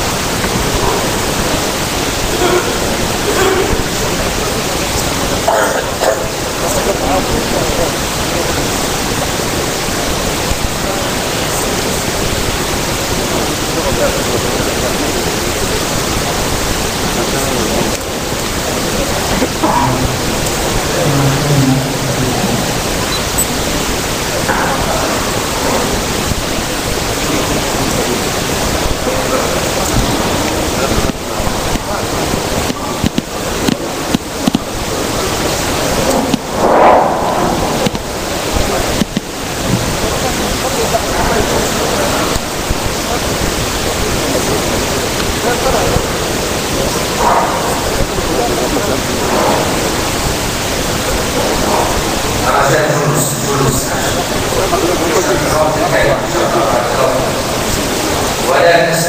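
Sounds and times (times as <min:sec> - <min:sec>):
faint voice: 0:00.0 - 0:59.0
loud steady hiss: 0:00.0 - 0:59.0
man talking faintly: 0:13.1 - 0:33.5.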